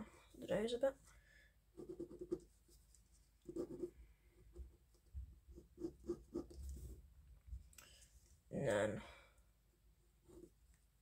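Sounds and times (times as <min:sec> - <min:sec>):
pencil scratching on paper: 0:01.7 - 0:07.1, 0:10.2 - 0:10.6.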